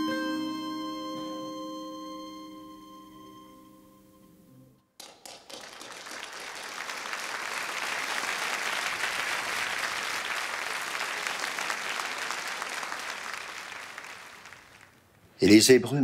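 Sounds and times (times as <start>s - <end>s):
audience clapping: 5.0s - 15.3s.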